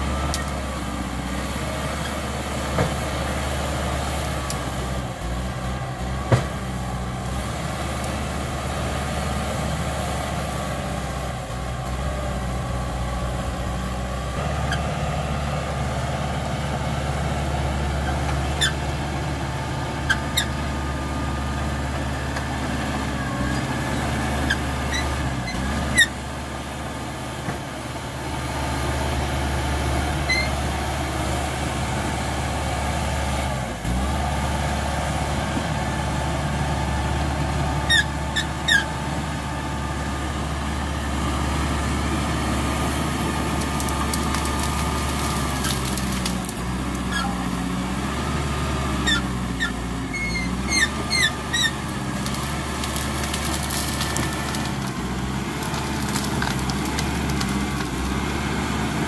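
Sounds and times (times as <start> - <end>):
bulldozer diesel engine under load: 0.0 - 59.0
short sharp squeaks: 30.2 - 30.5, 49.1 - 51.8.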